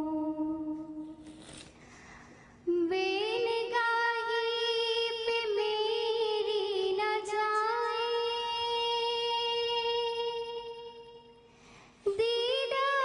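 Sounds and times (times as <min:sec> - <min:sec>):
person singing devotional song: 0:02.6 - 0:13.0.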